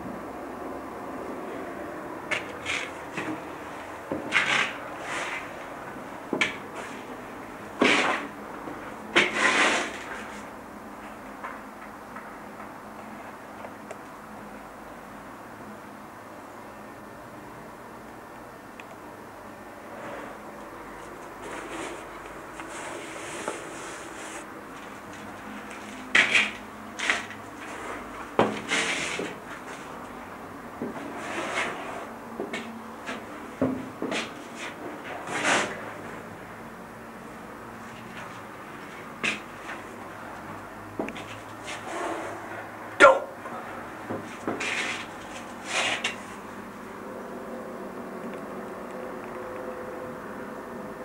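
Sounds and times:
rustle or scrape: 2.3 - 5.7, 6.7 - 7.1, 7.8 - 8.3, 9.2 - 10.6, 19.9 - 20.4, 21.0 - 30.0, 30.9 - 32.2, 34.1 - 36.2, 41.2 - 42.7, 44.2 - 46.5.

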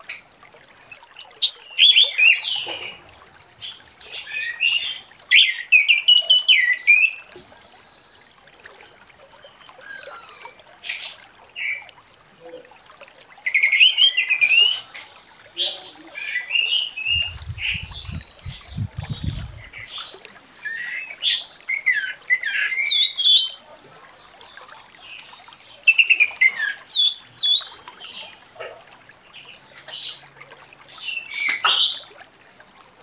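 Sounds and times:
thrush singing chirps and warbles: 15.5 - 28.4.

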